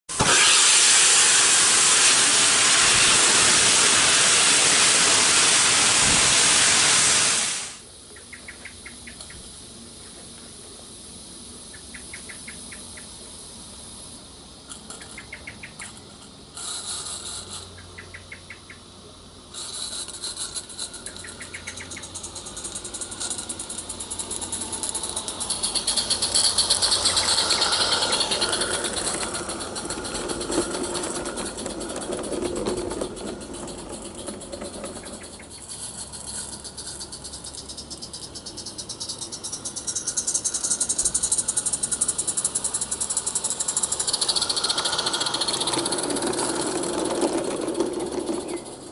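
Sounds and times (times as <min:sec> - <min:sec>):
loud steam hiss: 0:00.1 - 0:08.1, 0:18.8 - 0:37.4, 0:39.6 - 0:48.9
small steam locomotive chuffing: 0:00.1 - 0:48.9.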